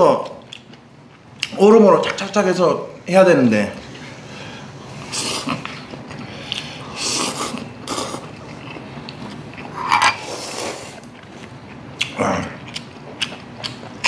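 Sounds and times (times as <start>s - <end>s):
slurping noodles: 6.9s - 8.5s, 10.1s - 11.1s.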